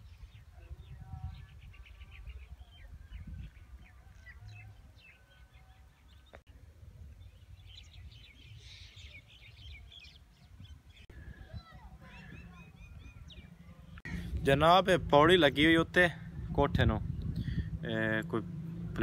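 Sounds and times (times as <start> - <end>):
birds chirping: 0.0 - 19.0
wind rumble on microphone: 0.0 - 19.0.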